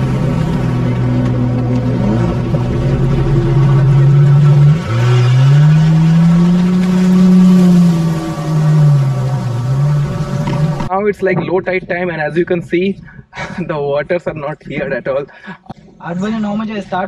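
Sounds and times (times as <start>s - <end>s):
jet ski engine revving: 0.0s - 10.9s.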